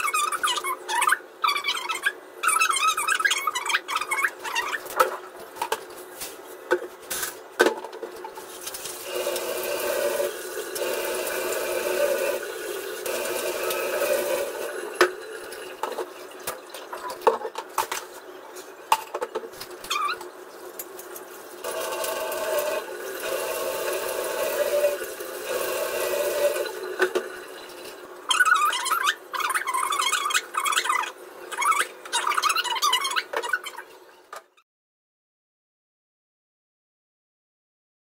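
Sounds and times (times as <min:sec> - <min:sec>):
tap water running: 0:07.9 - 0:18.0, 0:19.1 - 0:28.7.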